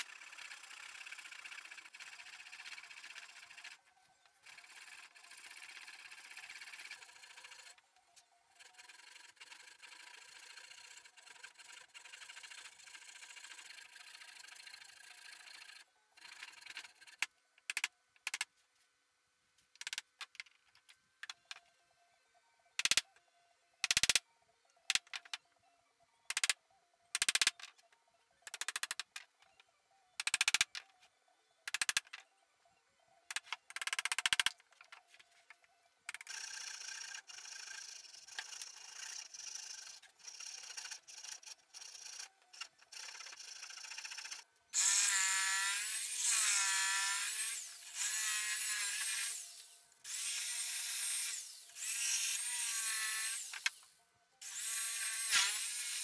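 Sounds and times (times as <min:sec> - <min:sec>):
jigsaw motor whine: 0:42.9 - 0:53.8, 0:54.4 - 0:56.0
hand saw cutting wood: 0:54.4 - 0:56.0.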